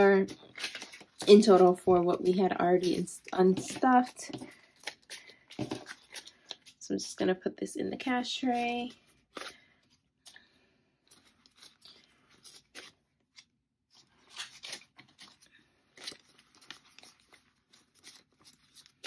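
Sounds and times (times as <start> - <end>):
paper banknotes rustling: 0.0 - 6.8, 11.1 - 19.0.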